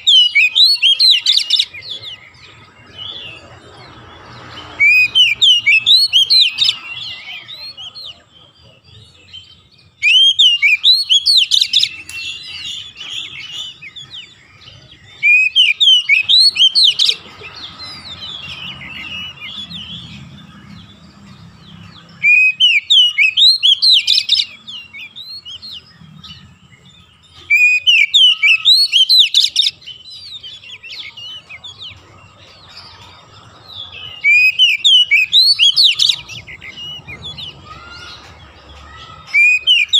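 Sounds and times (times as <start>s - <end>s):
bird singing whistled phrases: 0.0s - 2.0s, 4.7s - 7.7s, 10.0s - 17.2s, 22.2s - 25.9s, 27.4s - 31.7s, 34.0s - 39.9s.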